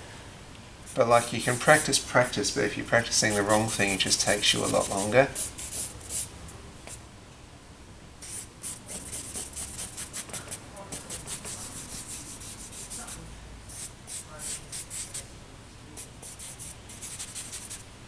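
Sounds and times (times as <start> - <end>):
charcoal scratching on paper: 3.2 - 6.3, 8.2 - 15.3, 16.0 - 17.9.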